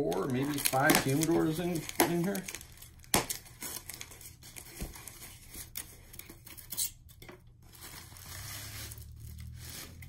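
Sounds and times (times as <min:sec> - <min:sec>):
cardboard scraping and rubbing: 0:07.8 - 0:10.0.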